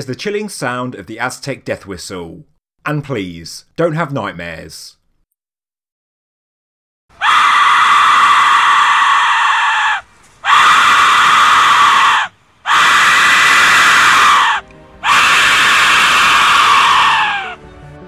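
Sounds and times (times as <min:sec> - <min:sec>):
whistle shrieking: 0:07.2 - 0:17.6.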